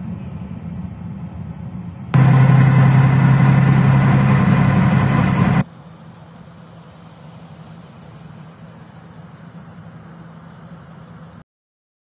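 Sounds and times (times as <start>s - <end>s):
vehicle engine droning: 2.1s - 11.4s
faint outdoor background noise: 5.6s - 11.4s.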